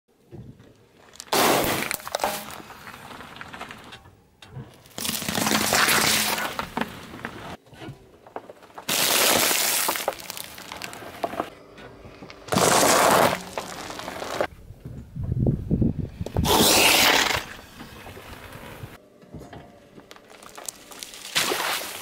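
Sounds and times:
tyre crunching small objects: 0:00.8 - 0:04.0, 0:04.7 - 0:11.5, 0:12.2 - 0:14.5, 0:16.3 - 0:17.6, 0:20.0 - 0:22.0.

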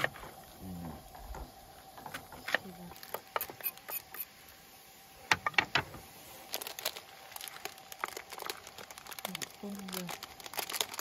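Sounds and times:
plastic container crinkling: 0:06.3 - 0:11.0.

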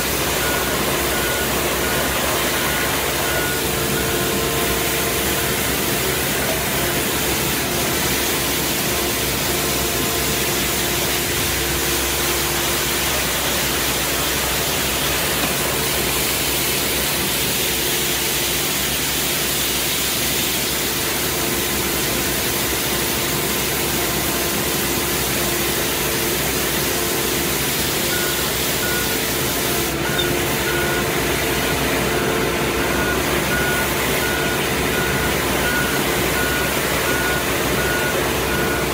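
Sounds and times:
street sweeper engine droning: 0:00.0 - 0:38.9
high warning beep: 0:00.1 - 0:06.5, 0:28.0 - 0:29.4, 0:30.0 - 0:38.9.

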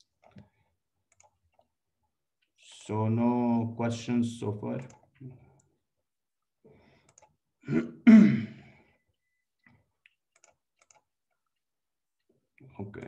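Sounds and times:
man clearing his throat: 0:07.6 - 0:08.8.

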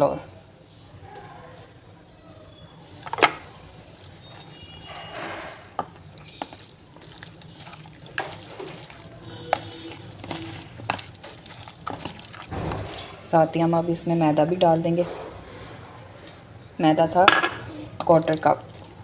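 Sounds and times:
hand squishing wet chicken: 0:02.8 - 0:13.2, 0:18.0 - 0:19.0.

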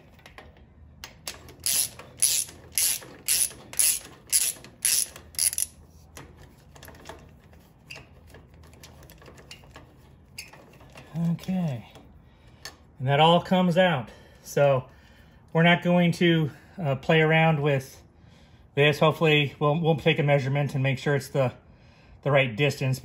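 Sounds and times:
ratchet wrench clicking: 0:01.0 - 0:05.8.

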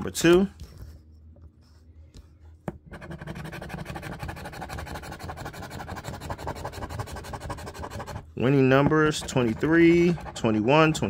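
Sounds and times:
coin scratching lottery ticket: 0:02.9 - 0:11.0.

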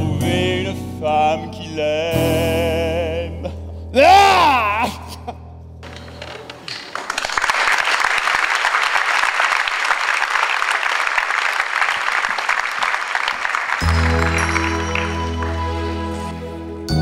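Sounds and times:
audience applauding: 0:06.2 - 0:15.7.

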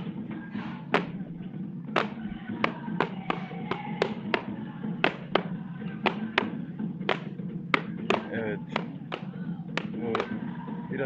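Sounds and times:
rubber boots knocking on ground: 0:02.0 - 0:10.3.

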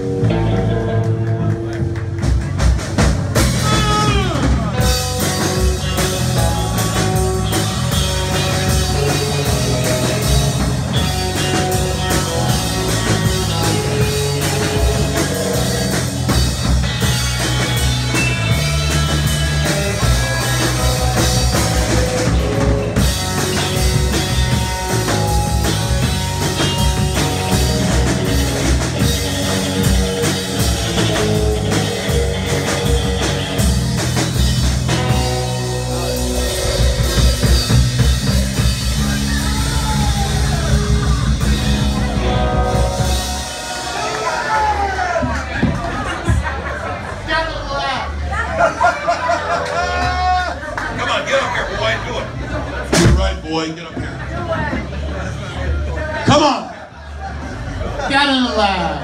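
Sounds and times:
drum kit: 0:00.0 - 0:46.8, 0:52.2 - 0:55.2
electric guitars: 0:00.0 - 0:47.0.

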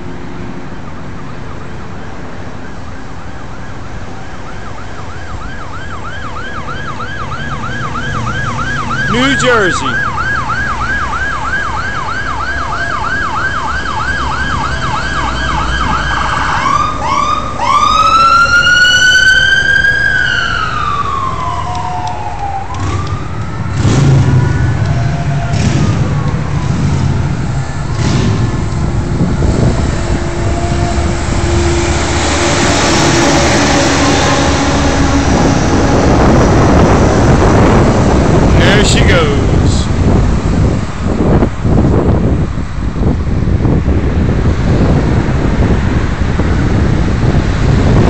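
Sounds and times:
heavy vehicle engines: 0:00.0 - 0:48.0
police siren yelping and wailing: 0:01.3 - 0:28.0.

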